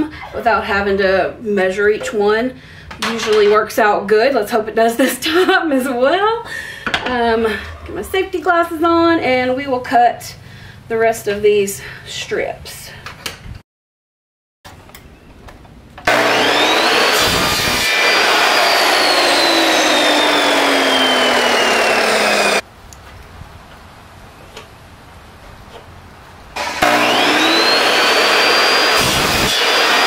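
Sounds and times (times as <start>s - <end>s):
miter saw motor whining: 16.0s - 22.6s, 26.6s - 30.0s
saw blade rasping through trim: 16.1s - 22.6s, 26.6s - 30.0s.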